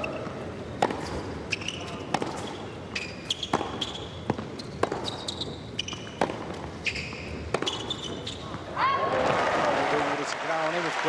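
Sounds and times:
shoe squeaks: 0.0 - 8.7
ball bouncing: 0.2 - 2.5, 3.3 - 8.6
racket hitting ball: 0.2 - 8.2.

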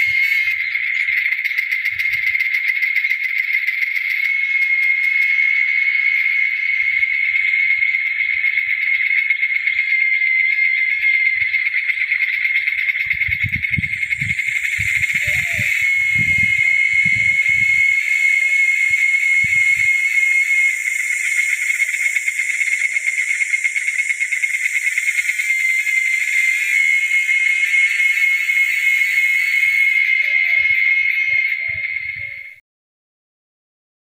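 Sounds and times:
insect chorus buzzing: 0.0 - 32.6
higher insect hiss: 14.0 - 30.3.

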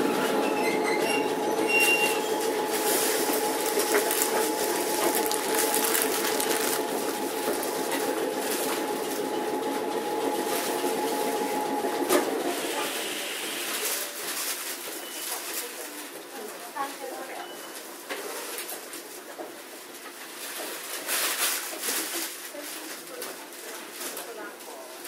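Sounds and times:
rattles and clicks from tram: 0.0 - 12.5
tram humming drone: 0.0 - 13.6.

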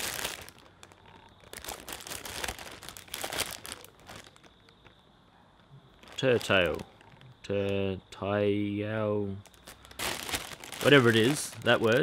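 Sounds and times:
plastic bag crinkling: 0.0 - 4.9, 5.9 - 7.7, 9.4 - 12.0.

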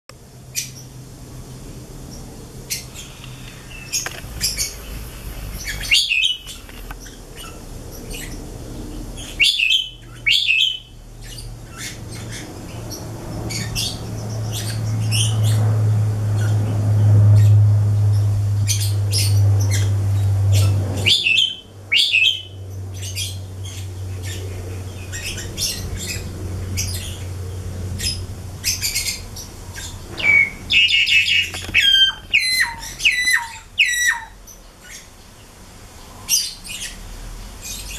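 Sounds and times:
starling chirps and whistles: 2.7 - 7.6, 9.2 - 12.4, 20.6 - 23.4, 29.8 - 35.0
bird squawking harshly: 30.2 - 34.4.

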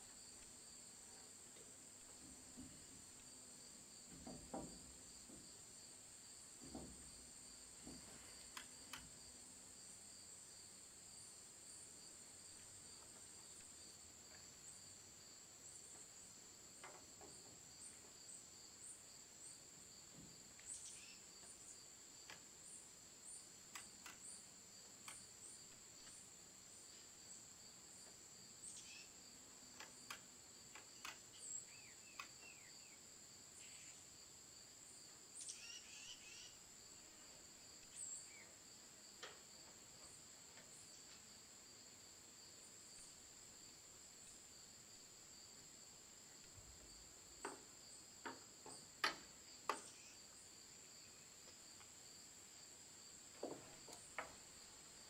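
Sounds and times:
high-pitched insect chorus: 28.4 - 29.3, 30.0 - 38.7, 46.2 - 55.0.

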